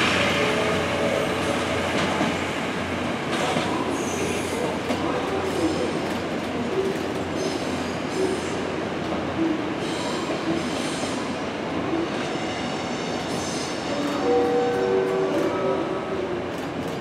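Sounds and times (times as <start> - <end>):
train wheels clattering over rails: 1.4 - 2.4.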